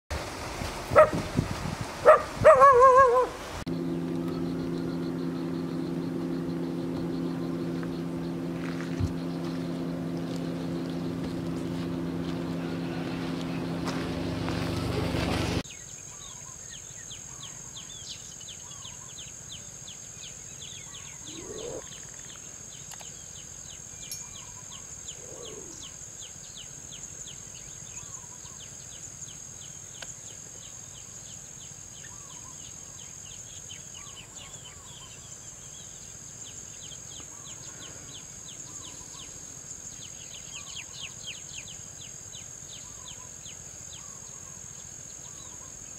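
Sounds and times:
warbling bird calls: 0:02.0 - 0:15.0, 0:20.7 - 0:22.4, 0:23.8 - 0:26.0, 0:45.2 - 0:45.9
low droning hum: 0:03.6 - 0:15.6
bird chirps: 0:03.7 - 0:13.8, 0:15.7 - 0:26.7, 0:32.0 - 0:44.6
high insect trill: 0:15.6 - 0:45.9.

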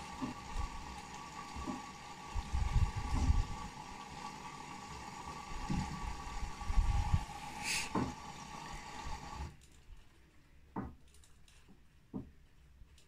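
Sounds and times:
washing machine motor whine: 0:00.0 - 0:09.5.

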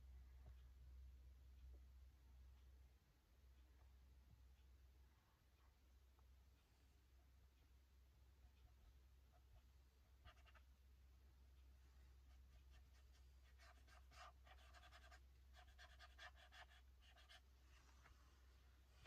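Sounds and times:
low steady hum: 0:00.0 - 0:19.0
paintbrush scratching on paper: 0:09.3 - 0:10.7, 0:12.2 - 0:18.4.

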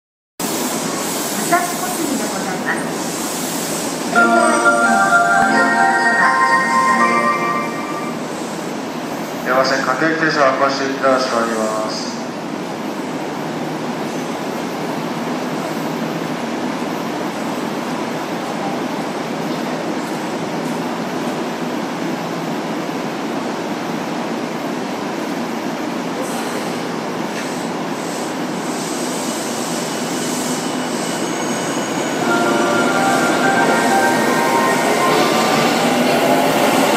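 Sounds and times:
train equipment humming: 0:32.1 - 0:36.9.

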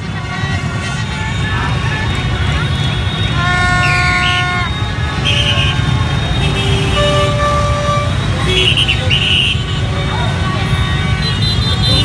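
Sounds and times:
horns honking: 0:00.0 - 0:12.0
motorbike engines rumbling: 0:00.0 - 0:12.0.

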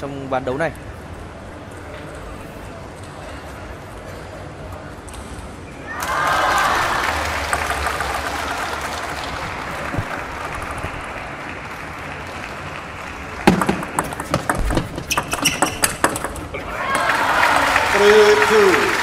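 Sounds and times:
applause: 0:06.0 - 0:13.5, 0:16.9 - 0:19.0
table tennis ball clicking: 0:13.4 - 0:16.5.

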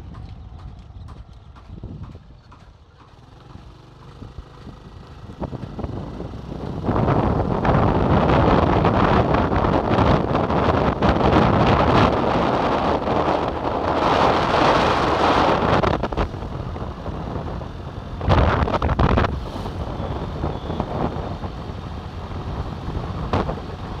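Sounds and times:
vehicle road noise: 0:00.0 - 0:24.0
wind buffeting microphone: 0:00.0 - 0:24.0.

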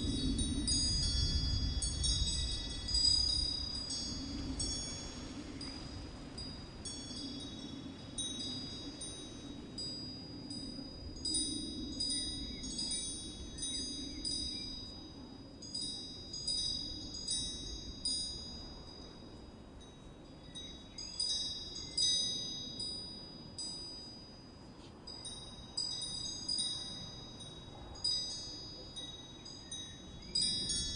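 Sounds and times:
wind chimes ringing: 0:00.0 - 0:30.9.

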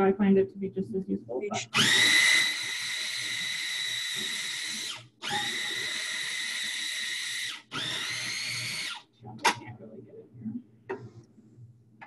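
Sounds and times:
food processor motor whine: 0:01.7 - 0:09.1.

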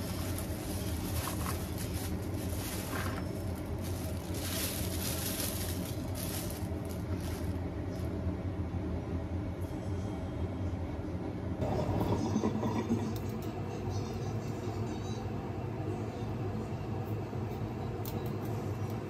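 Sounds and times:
plastic bag crinkling: 0:00.0 - 0:08.1
steady low hum: 0:00.0 - 0:19.0.

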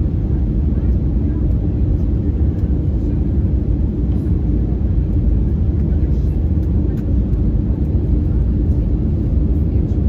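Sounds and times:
airliner cabin rumble: 0:00.0 - 0:10.0.

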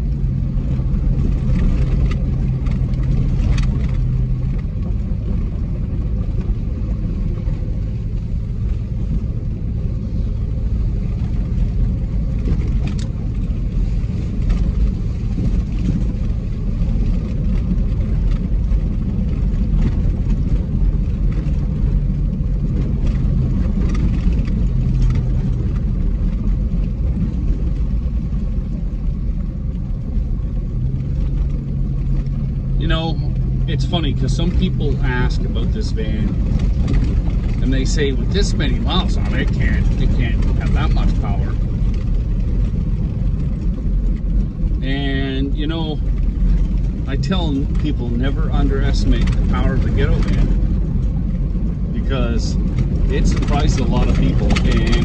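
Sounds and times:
engine and tyres on gravel: 0:00.0 - 0:55.0.

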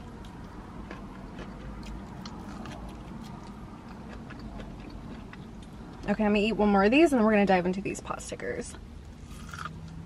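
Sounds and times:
low steady hum: 0:00.0 - 0:10.0
chewing corn with mouth clicks: 0:00.1 - 0:06.1.

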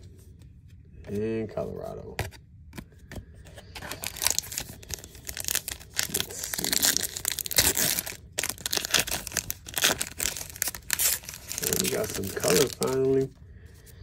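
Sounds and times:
foil wrapper tearing and crinkling: 0:03.8 - 0:13.3.

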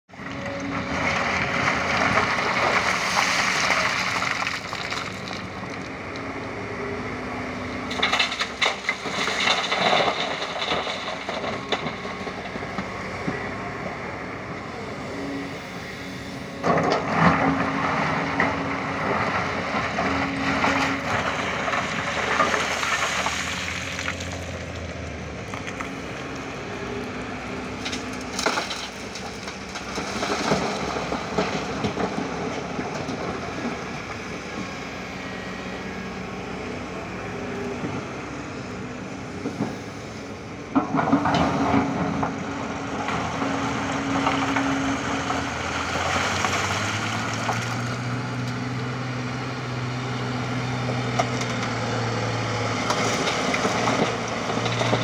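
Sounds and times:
excavator engine running: 0:00.1 - 0:55.0
rocks scraping and clattering: 0:00.4 - 0:06.2, 0:07.9 - 0:12.8, 0:16.6 - 0:24.9, 0:27.8 - 0:34.1, 0:40.7 - 0:48.2, 0:52.7 - 0:55.0.

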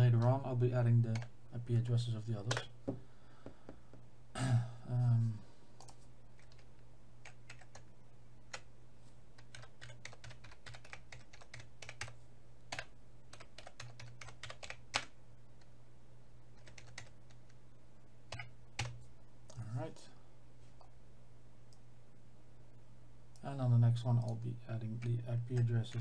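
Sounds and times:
faint low hum: 0:00.0 - 0:26.0
typing on computer keyboard: 0:05.8 - 0:07.9, 0:09.4 - 0:15.1, 0:16.6 - 0:17.4.

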